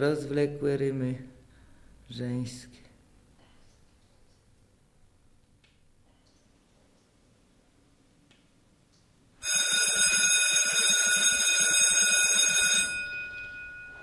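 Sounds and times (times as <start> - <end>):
electric bell ringing: 9.4 - 14.0.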